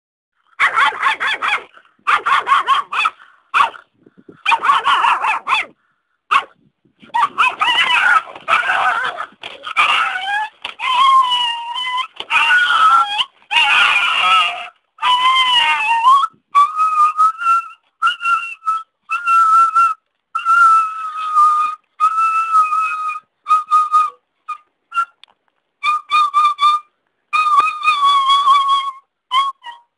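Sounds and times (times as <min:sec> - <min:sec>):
dog whining and yelping: 0:00.6 - 0:25.2, 0:25.8 - 0:29.9.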